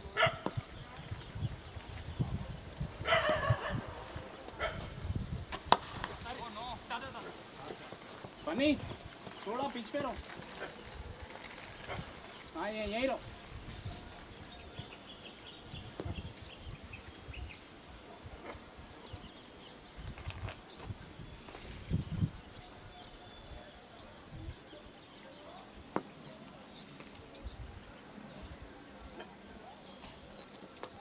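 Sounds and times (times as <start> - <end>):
wind buffeting microphone: 0.0 - 24.9, 27.2 - 29.2
faint chirps: 20.9 - 31.0.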